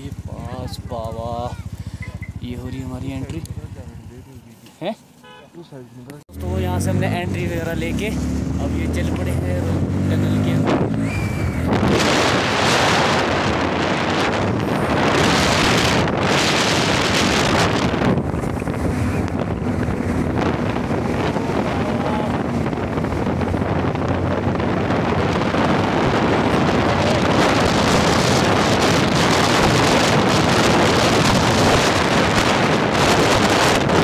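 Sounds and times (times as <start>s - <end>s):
motorcycle engine: 0.0s - 5.4s, 6.3s - 34.0s
road noise: 0.0s - 34.0s
wind buffeting microphone: 7.2s - 34.0s.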